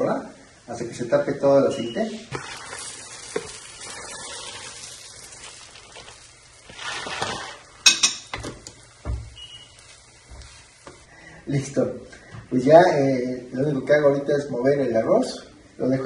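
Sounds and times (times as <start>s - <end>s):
pan sizzling softly: 2.1s - 11.1s
rice grains rattling into a pan: 2.3s - 7.9s.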